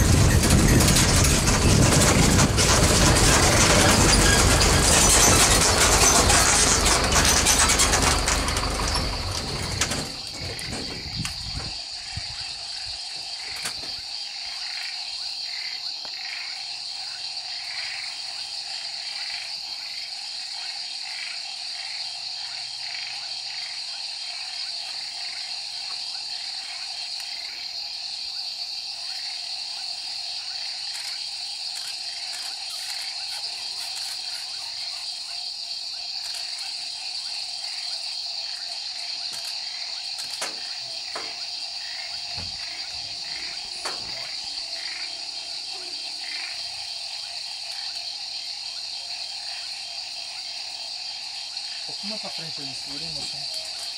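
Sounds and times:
vehicle engine: 0.0s - 11.6s
high-pitched insect trill: 0.0s - 53.9s
pulsing frog chorus: 0.0s - 53.9s.

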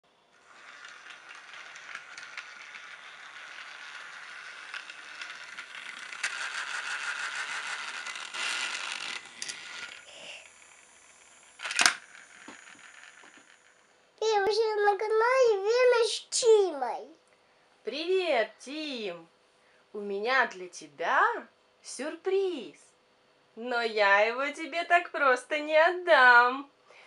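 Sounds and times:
toy train motor rattling: 0.3s - 16.5s.

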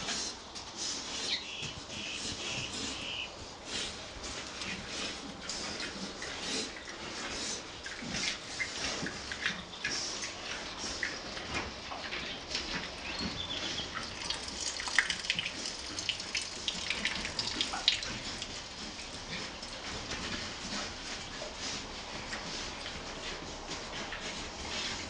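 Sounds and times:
hoof scuffs on dirt: 0.0s - 10.2s
pigs snuffling: 0.0s - 25.0s.

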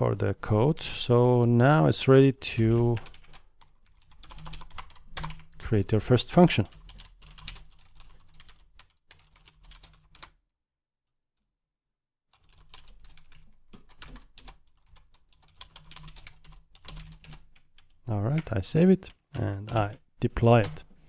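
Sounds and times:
computer keyboard typing: 2.6s - 5.6s, 6.6s - 10.4s, 12.3s - 20.8s.

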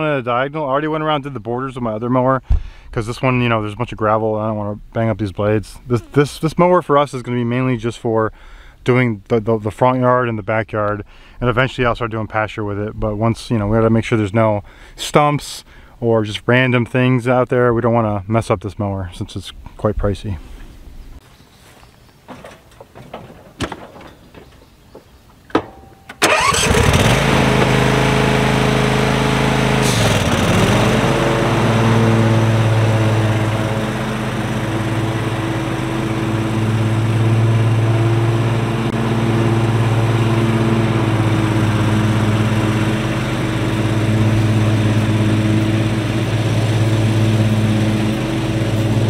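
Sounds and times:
mower engine running: 26.2s - 49.0s.

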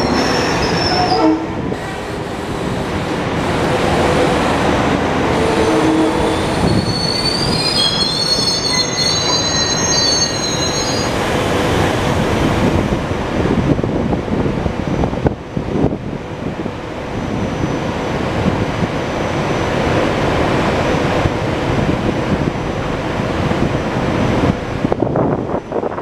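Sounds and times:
electric train rushing past: 0.0s - 26.0s
wind on microphone: 11.7s - 19.1s, 21.0s - 26.0s.

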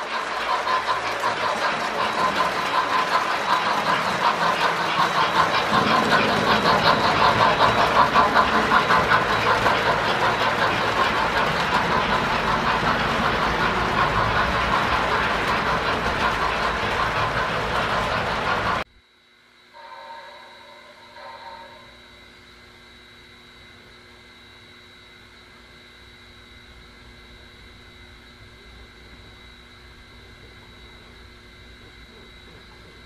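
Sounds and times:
model train wheels clattering: 0.0s - 18.8s.

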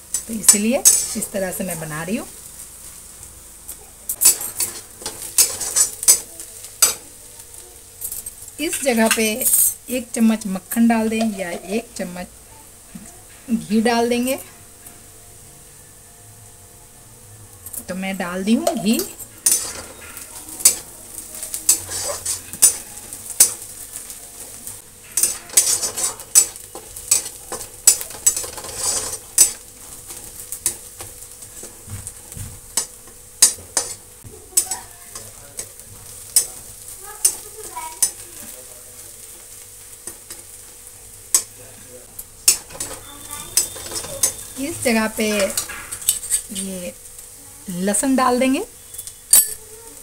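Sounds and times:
onions sizzling in a pan: 0.0s - 50.0s
spatula striking a pan: 4.1s - 7.1s, 18.5s - 24.1s, 25.0s - 38.2s, 42.4s - 46.5s.

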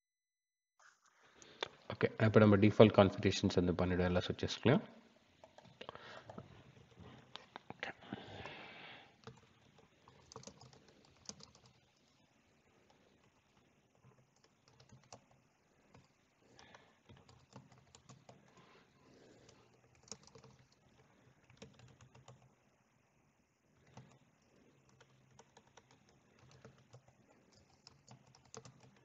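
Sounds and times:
faint keyboard typing: 5.4s - 7.9s, 9.0s - 29.0s.

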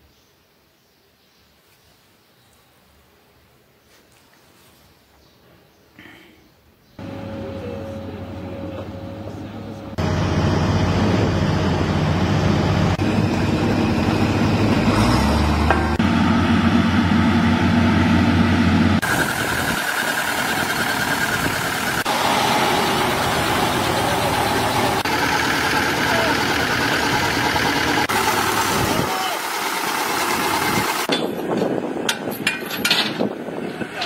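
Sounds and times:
high steady whine: 7.0s - 14.8s, 15.7s - 31.2s
construction machinery engines droning: 7.0s - 34.0s.

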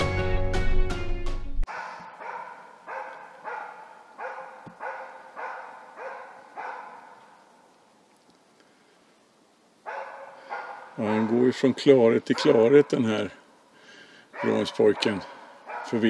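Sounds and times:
dog barking: 1.7s - 7.4s, 9.8s - 11.6s, 12.3s - 13.1s, 14.3s - 16.0s.

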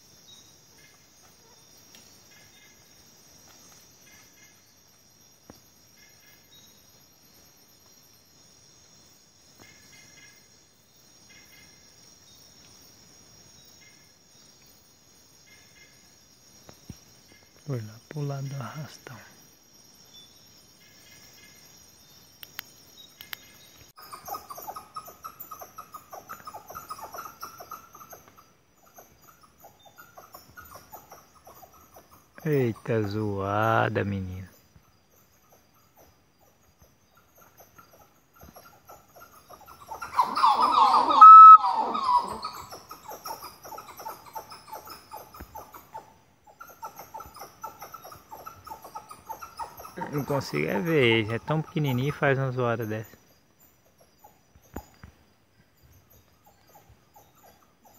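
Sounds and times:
night insects chirring: 0.0s - 57.9s
faint clicks: 22.4s - 23.5s
small animal calling rapidly: 37.4s - 52.3s.

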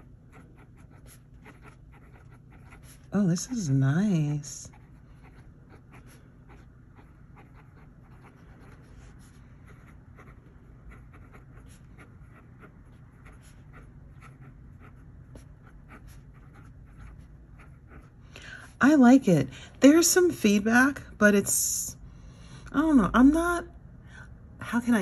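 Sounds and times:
fountain pen scratching on paper: 0.0s - 3.7s, 4.6s - 18.2s.

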